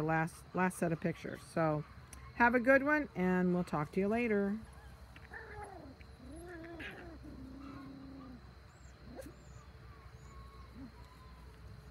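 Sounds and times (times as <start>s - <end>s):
puppies whining: 4.6s - 11.9s.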